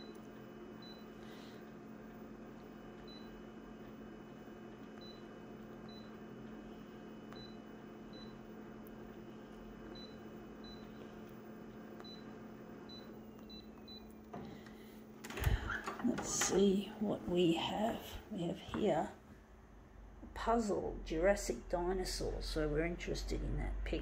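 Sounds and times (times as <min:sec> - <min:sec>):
high key-press beeps: 0:00.0 - 0:01.1, 0:03.0 - 0:03.4, 0:04.8 - 0:06.2, 0:07.3 - 0:08.5, 0:09.8 - 0:14.2
steady low hum: 0:00.0 - 0:24.0.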